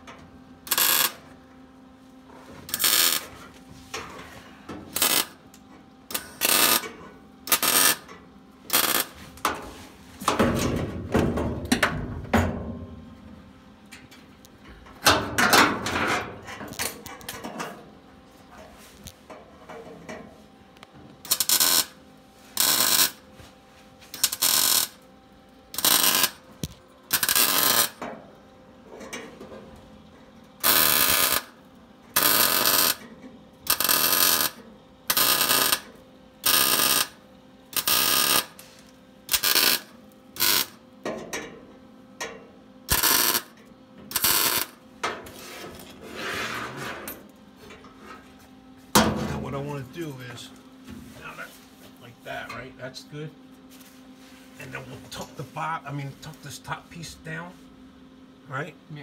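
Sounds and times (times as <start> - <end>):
welder arc crackling and hissing: 0.6 - 1.4, 2.6 - 5.4, 6.1 - 10.2, 20.8 - 23.3, 24.0 - 25.0, 25.7 - 28.0, 30.6 - 33.0, 33.6 - 40.8, 42.9 - 45.7.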